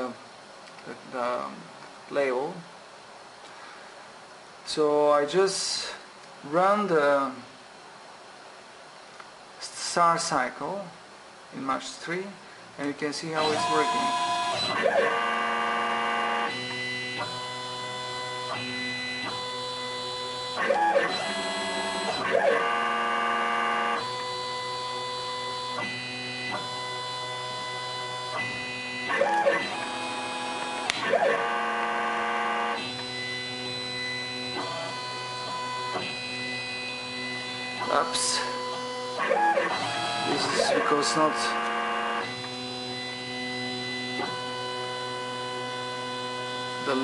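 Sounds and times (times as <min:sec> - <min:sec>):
stepper motors whining: 0:13.4 - 0:47.0.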